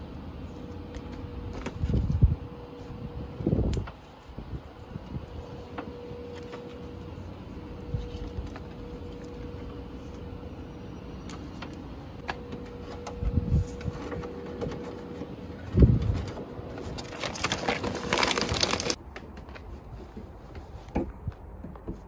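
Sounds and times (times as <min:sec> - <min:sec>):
wiring clicks and rustling: 0:15.8 - 0:19.7.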